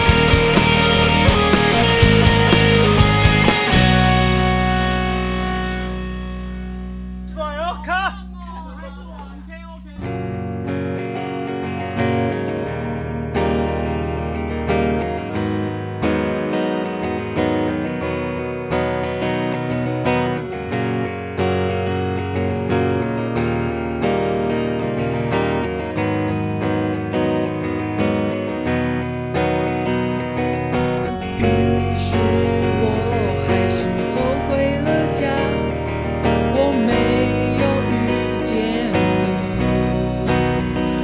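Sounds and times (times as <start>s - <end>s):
band music with strummed guitar: 0.0s - 41.0s.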